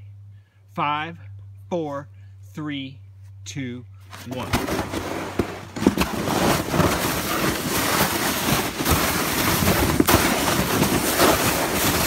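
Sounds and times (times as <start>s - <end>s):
sled bumps and knocks: 4.3s - 12.0s
sled hissing over snow: 6.3s - 12.0s.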